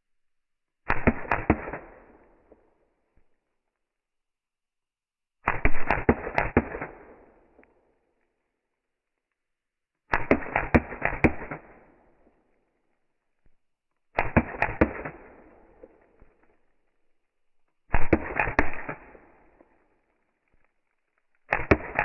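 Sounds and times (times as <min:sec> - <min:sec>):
airsoft pistol full-auto bursts: 0:10.1 - 0:12.0, 0:14.2 - 0:15.7, 0:17.9 - 0:19.4, 0:21.5 - 0:22.0
pellets cracking a screen: 0:17.8 - 0:22.0.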